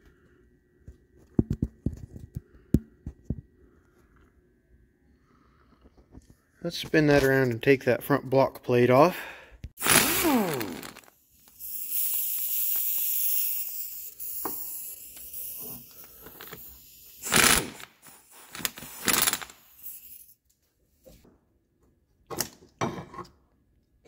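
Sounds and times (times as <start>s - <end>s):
air hiss: 9.8s - 20.3s
pneumatic air ratchet: 9.8s - 20.4s.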